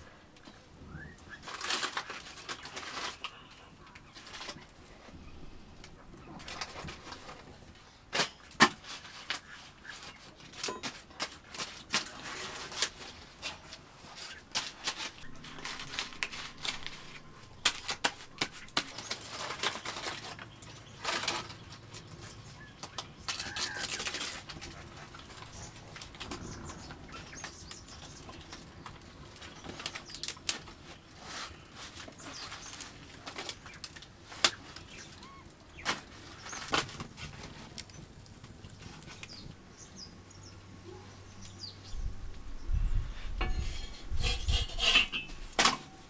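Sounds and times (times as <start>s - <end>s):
wood fire crackling: 0.0s - 42.5s
leaves rustling: 1.2s - 46.0s
faint pigeons cooing: 18.2s - 36.7s.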